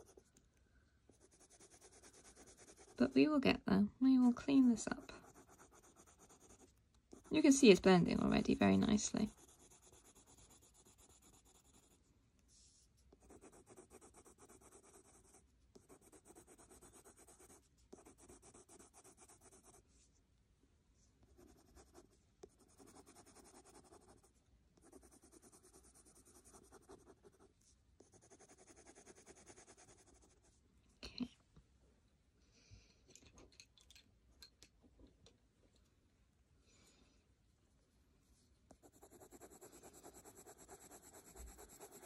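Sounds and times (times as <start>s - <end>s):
pencil scratching on paper: 1.1s - 3.1s, 4.5s - 7.6s, 9.2s - 12.0s, 13.1s - 19.8s, 21.3s - 30.4s, 38.8s - 42.0s.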